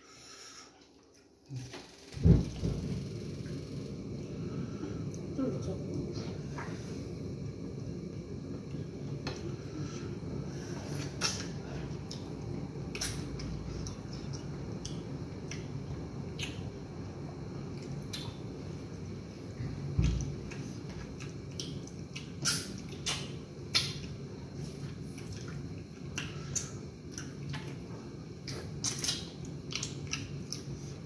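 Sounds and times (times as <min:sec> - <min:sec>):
steady low hum: 0:00.0 - 0:31.0
dull thump: 0:02.2 - 0:03.0
wet mouth clicks and smacks: 0:16.4 - 0:16.6, 0:21.2 - 0:24.2, 0:28.5 - 0:30.7.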